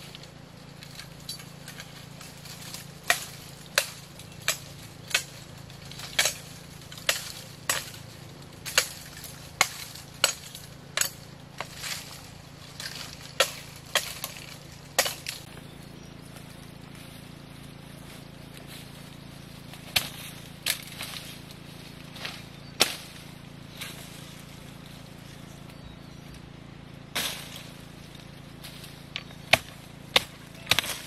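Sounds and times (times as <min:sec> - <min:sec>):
machete chopping bamboo: 0:00.1 - 0:15.6, 0:19.7 - 0:21.5, 0:22.1 - 0:24.2, 0:27.1 - 0:27.9, 0:28.6 - 0:31.0.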